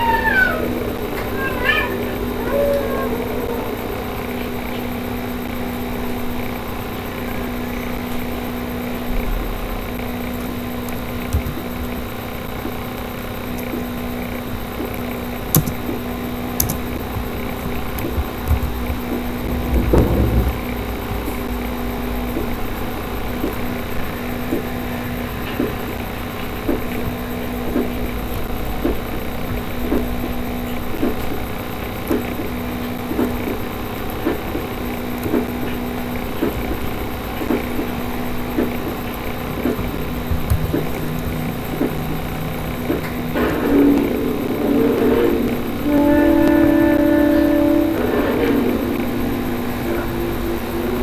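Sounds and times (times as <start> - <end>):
low hum and rumble: 0.0 - 51.0
microphone hum and noise: 14.5 - 23.7
faint clicks: 14.8 - 16.0, 16.6 - 20.1.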